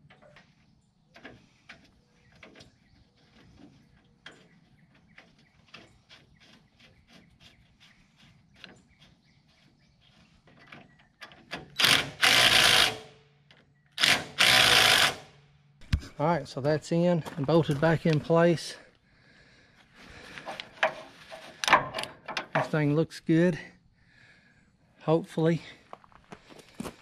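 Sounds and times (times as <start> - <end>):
cordless power driver bursts: 11.8 - 13.1, 14.0 - 15.3.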